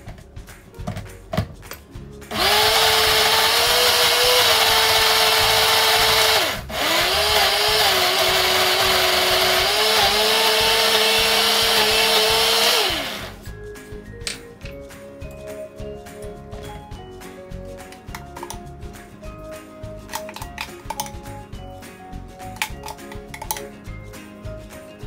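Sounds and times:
blender motor running: 2.3 - 13.5.

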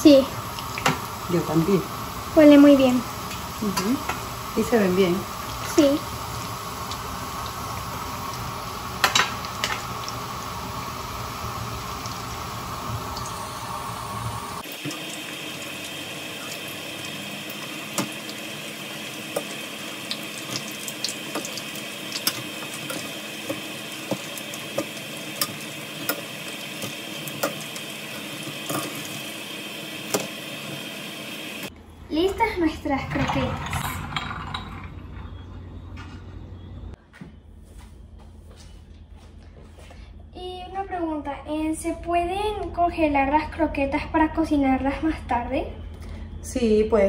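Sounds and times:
deep-frying sizzle with pops: 0.1 - 31.7
low hum: 31.7 - 40.7.

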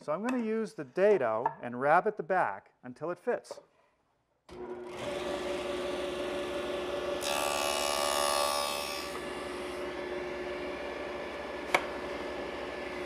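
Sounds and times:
table saw cutting wood panel: 4.5 - 13.0.

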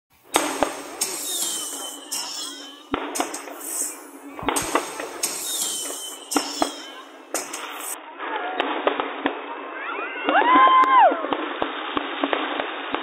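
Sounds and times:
fireworks crackling: 0.1 - 10.5, 11.3 - 13.0
falling firework whistle: 0.2 - 8.0
fireworks bangs: 0.2 - 10.6, 11.3 - 13.0.

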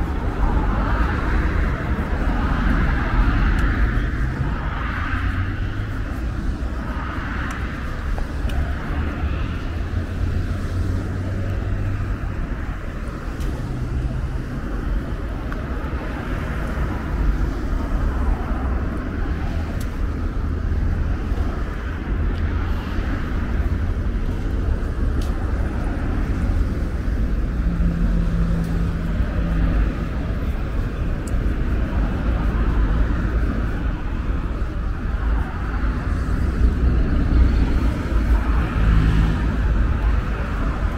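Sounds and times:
traffic rumble: 0.0 - 40.9
vehicle passing by: 35.4 - 40.9.

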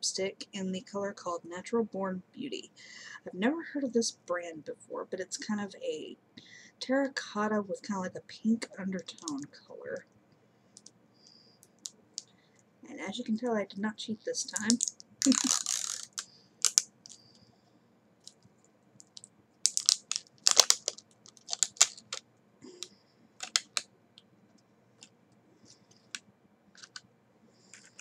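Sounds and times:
packaging rustle: 14.5 - 17.3, 19.0 - 22.2, 23.4 - 23.8, 26.8 - 27.0.

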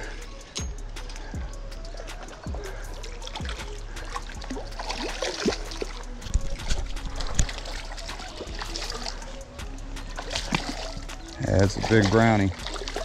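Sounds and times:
fish thrashing in water: 2.1 - 9.4, 10.1 - 13.0.

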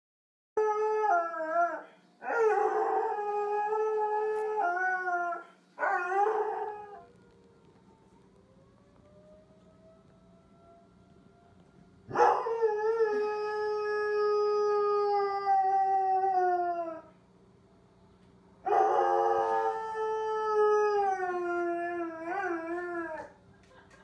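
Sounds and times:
tornado siren: 5.9 - 15.5, 18.9 - 23.3.

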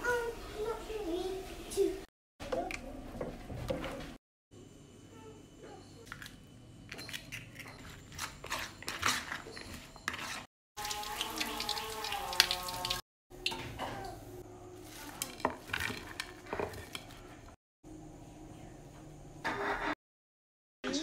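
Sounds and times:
frying crackling and clatter: 10.4 - 13.7.

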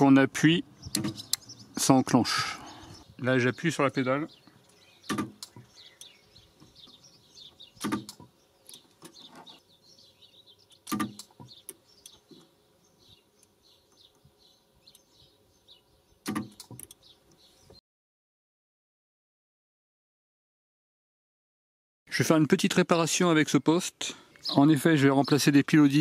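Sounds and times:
spot welder snapping: 0.9 - 1.5, 5.1 - 6.1, 7.8 - 9.2, 10.7 - 12.2, 16.2 - 17.4
faint bird chirps: 4.2 - 8.0.

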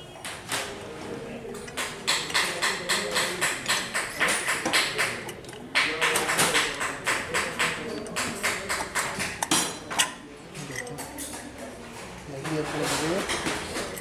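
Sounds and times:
rapid even tapping: 1.5 - 9.7.

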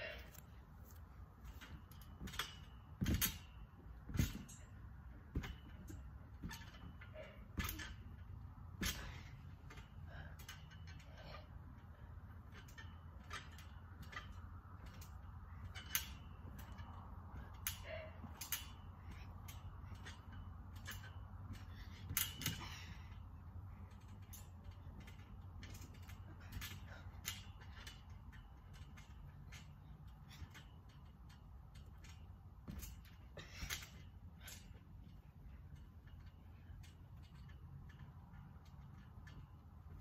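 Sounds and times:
steady low hum: 0.0 - 40.0
trampoline springs creaking: 0.0 - 40.0.

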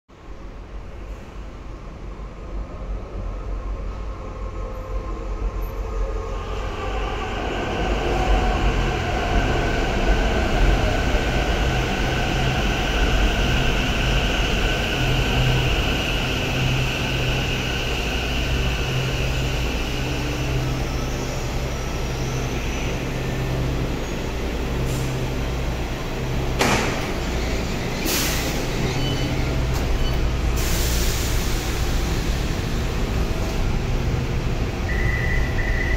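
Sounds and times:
metro train humming and whining: 0.1 - 35.9
train doors opening: 24.8 - 33.6.

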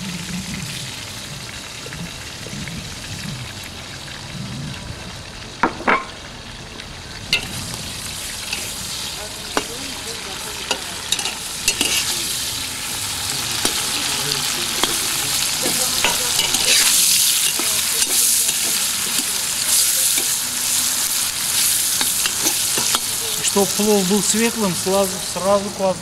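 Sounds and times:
meat sizzling in hot oil: 0.0 - 26.0
metal skimmer scraping pot: 7.4 - 12.3, 13.3 - 20.4, 22.0 - 23.2.

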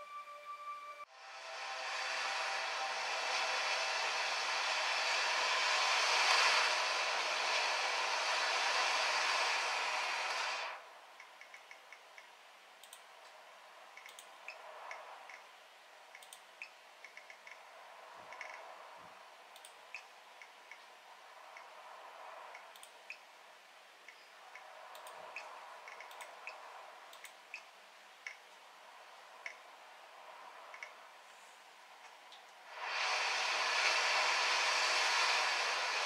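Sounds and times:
small clicks and ticks: 11.2 - 15.5, 16.1 - 17.7, 18.3 - 18.7, 19.5 - 20.9, 24.0 - 28.6, 30.7 - 31.0.

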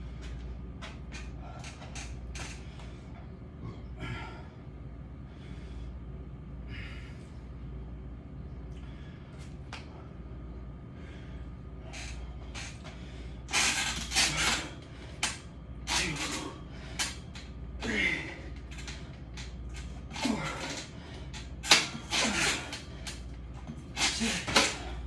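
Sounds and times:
man breathing hard: 1.2 - 7.6, 8.7 - 25.0
forceful exhales with grunts: 20.1 - 23.0, 24.0 - 25.0.

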